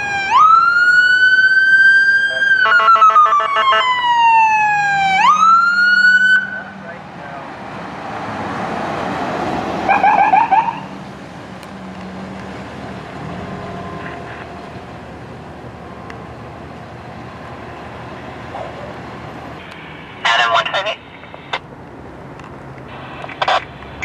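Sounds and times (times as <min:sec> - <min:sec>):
siren yelp: 0:00.0 - 0:06.8, 0:09.9 - 0:10.9
traffic and engine noise: 0:00.0 - 0:24.0.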